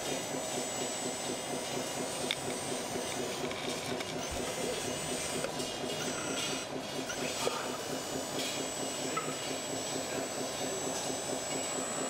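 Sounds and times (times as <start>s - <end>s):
small motors and gears whirring: 0.0s - 12.0s.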